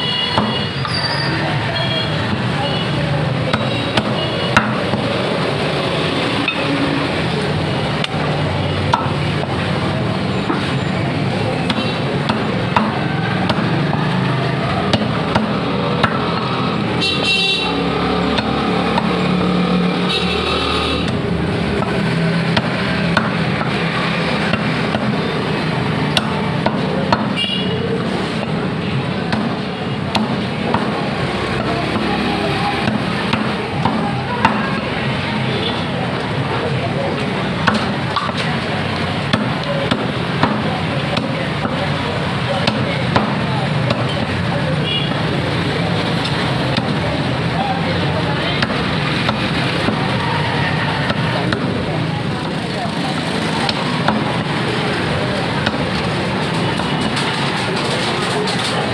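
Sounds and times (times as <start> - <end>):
street noise: 0.0 - 58.9
cleaver chopping on wooden block: 0.4 - 0.6, 3.5 - 5.1, 11.6 - 14.1, 26.1 - 27.4, 29.3 - 32.1, 32.8 - 34.8, 39.3 - 41.8, 42.6 - 44.3, 48.6 - 50.0, 53.7 - 54.5, 55.6 - 55.9.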